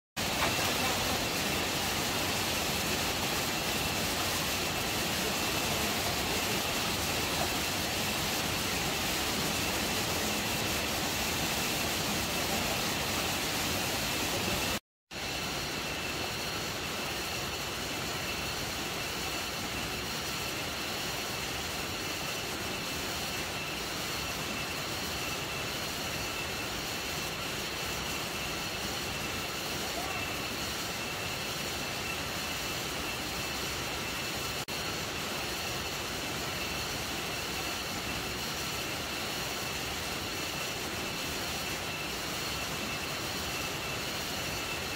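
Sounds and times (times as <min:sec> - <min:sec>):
stream rushing over rocks: 0:00.2 - 0:14.8.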